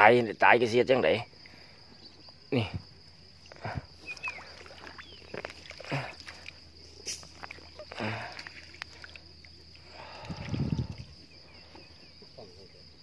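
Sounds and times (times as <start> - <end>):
insects chirring: 0.0 - 13.0
rustling and splashing in water: 3.4 - 12.3.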